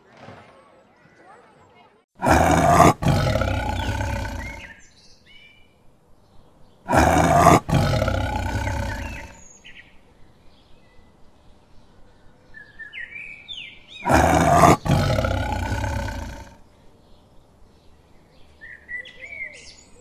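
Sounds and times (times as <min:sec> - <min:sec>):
birds chirping faintly: 0:00.8 - 0:20.0
tiger roaring: 0:02.2 - 0:04.7, 0:06.9 - 0:09.4, 0:14.0 - 0:16.6.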